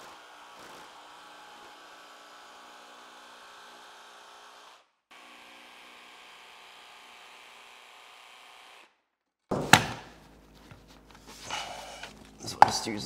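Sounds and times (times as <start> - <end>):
jigsaw cutting plank: 0.0 - 9.0.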